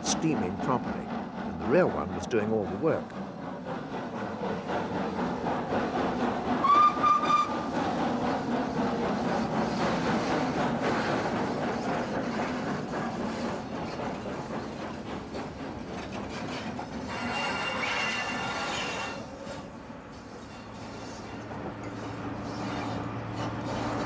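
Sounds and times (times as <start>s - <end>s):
carriages clattering over rail joints: 0.0s - 24.0s
steam train rolling past: 0.0s - 24.0s
high wheel squeal: 6.6s - 7.6s, 16.5s - 19.4s.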